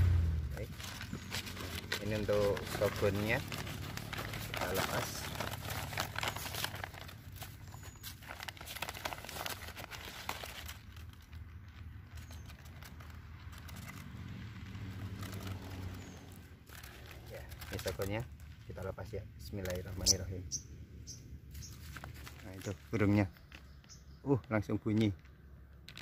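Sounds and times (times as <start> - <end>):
paper bag crinkling: 0.5 - 19.0, 21.5 - 23.8.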